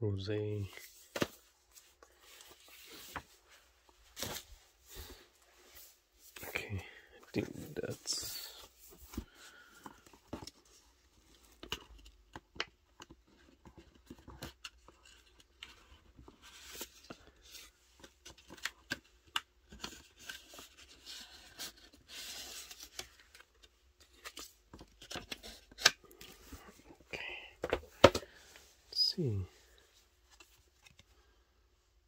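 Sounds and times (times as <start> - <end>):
paper and cardboard rustling: 7.4 - 28.6.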